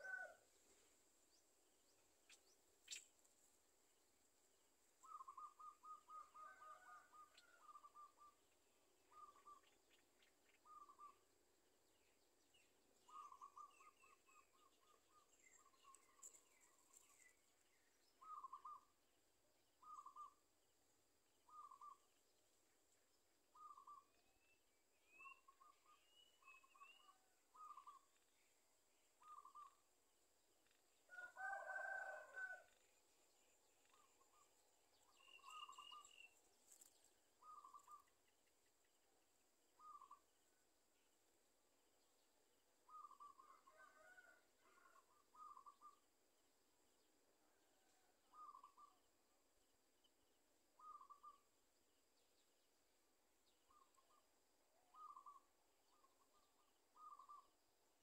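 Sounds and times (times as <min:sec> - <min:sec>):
faint high bird chirps: 0:00.0 - 0:00.4, 0:05.0 - 0:11.3, 0:12.5 - 0:19.1, 0:19.8 - 0:20.5, 0:21.4 - 0:22.3, 0:23.5 - 0:29.9, 0:33.7 - 0:39.1, 0:39.7 - 0:40.4, 0:42.8 - 0:46.1, 0:47.8 - 0:49.2, 0:50.0 - 0:52.6, 0:53.4 - 0:57.6
rooster crowing: 0:00.0 - 0:00.4, 0:06.4 - 0:07.8, 0:31.1 - 0:32.8, 0:43.4 - 0:45.1.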